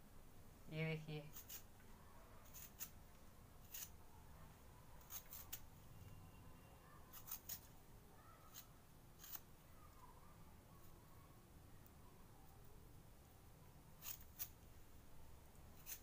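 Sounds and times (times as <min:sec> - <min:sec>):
vegetable peeler scraping: 0:01.3 - 0:01.7, 0:02.4 - 0:03.0, 0:03.6 - 0:04.0, 0:05.0 - 0:05.7, 0:07.1 - 0:07.7, 0:08.4 - 0:09.5, 0:14.0 - 0:14.6, 0:15.8 - 0:16.0.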